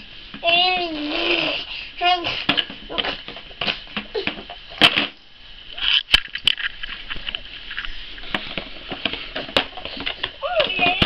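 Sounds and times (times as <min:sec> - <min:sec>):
baby vocalizing: 0:00.5 - 0:03.2.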